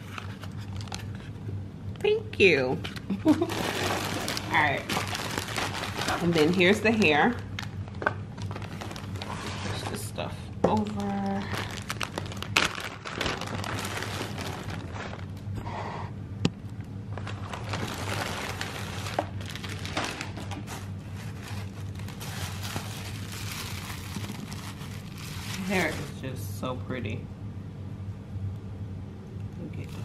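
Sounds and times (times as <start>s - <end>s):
plastic bag crinkling: 3.0s - 15.6s, 17.1s - 26.3s.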